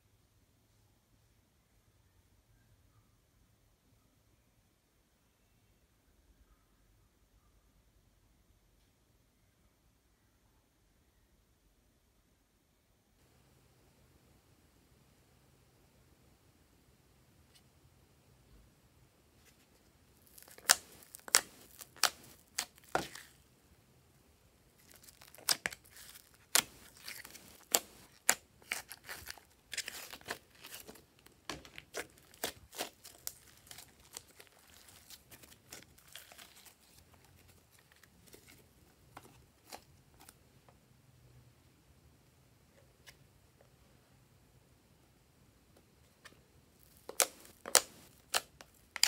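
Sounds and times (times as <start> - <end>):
slime popping and crackling: 20.2 - 23.4, 24.8 - 37.0, 46.8 - 49.0.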